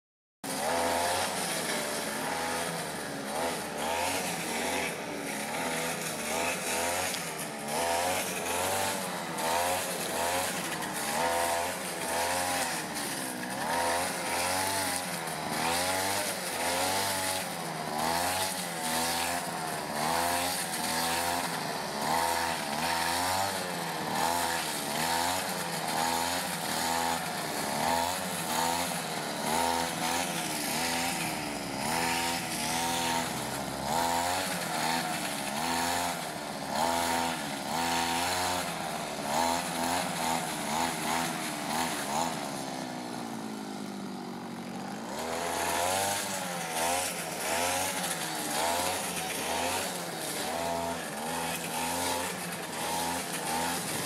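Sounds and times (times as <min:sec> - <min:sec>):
brush cutter engine revving: 0:00.4 - 0:54.0.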